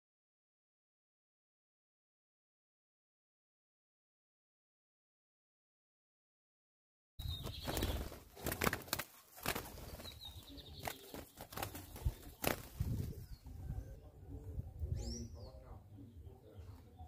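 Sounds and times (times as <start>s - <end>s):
dove wings flapping: 7.3s - 13.2s.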